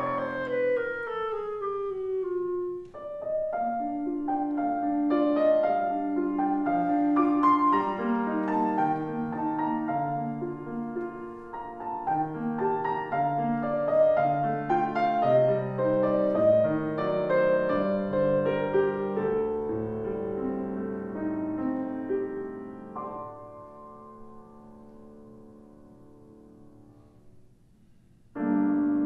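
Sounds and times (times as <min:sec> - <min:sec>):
clarinet falling glide: 0:00.0 - 0:04.6
grand piano playing: 0:00.0 - 0:29.0.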